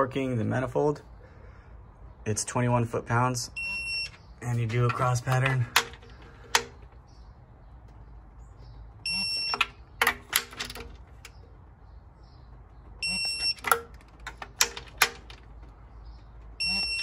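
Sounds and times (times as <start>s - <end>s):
torque wrench high beep: 3.6s - 4.2s, 9.0s - 9.7s, 13.0s - 13.8s, 16.6s - 17.0s
wrench clicks on bolts: 4.7s - 6.8s, 13.4s - 15.4s.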